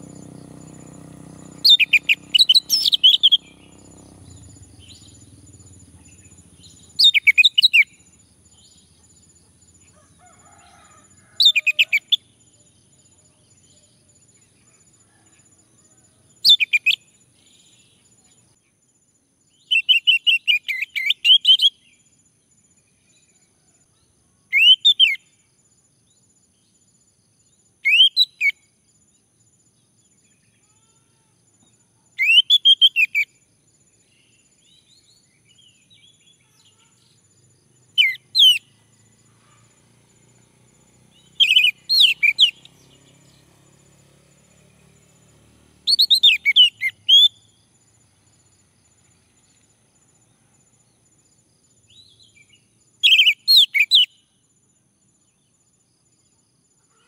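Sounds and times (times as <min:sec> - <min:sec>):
thrush singing whistled notes: 0:00.0 - 0:09.3, 0:16.4 - 0:18.1, 0:19.6 - 0:22.0, 0:24.5 - 0:25.3, 0:27.8 - 0:28.6, 0:32.2 - 0:33.4, 0:37.4 - 0:39.2, 0:40.1 - 0:47.8, 0:51.8 - 0:54.3.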